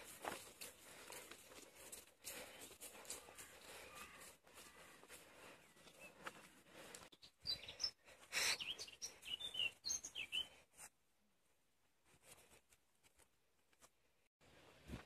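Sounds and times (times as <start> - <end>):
small birds chirping: 2.2 - 10.7.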